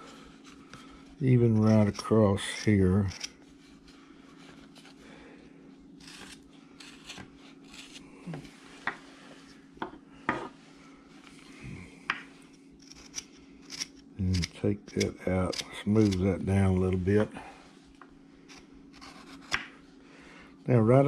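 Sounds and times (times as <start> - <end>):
knife scraping wood: 0.4 - 5.0, 6.0 - 8.1, 12.8 - 16.4, 18.5 - 19.7.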